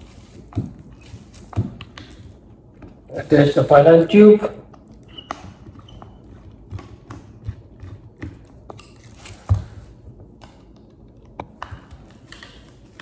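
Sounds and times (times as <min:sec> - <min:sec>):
plastic wrapping crinkling: 0:00.0 - 0:04.2, 0:08.8 - 0:09.9.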